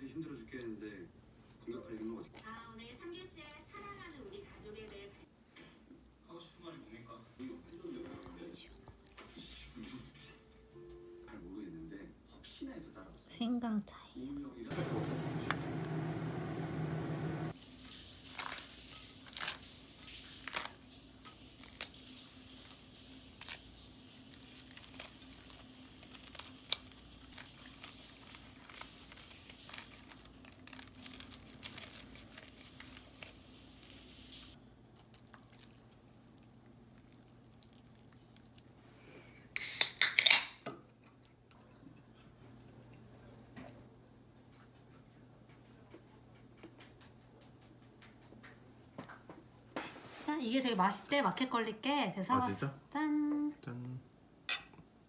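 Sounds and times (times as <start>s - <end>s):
foil pouch crinkling: 17.8s - 34.6s
beer can cracked open: 39.6s - 40.6s.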